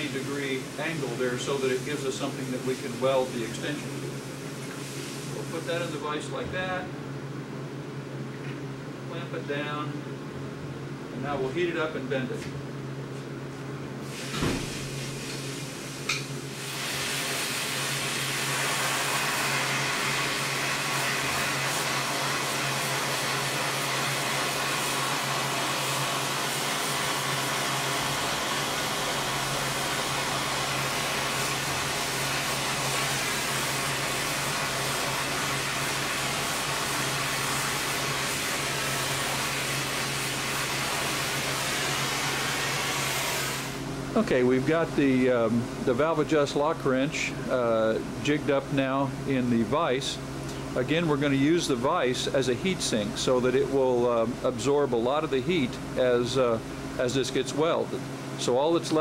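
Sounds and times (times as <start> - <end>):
gas torch flame hissing: 0.0 - 6.3, 14.0 - 45.2.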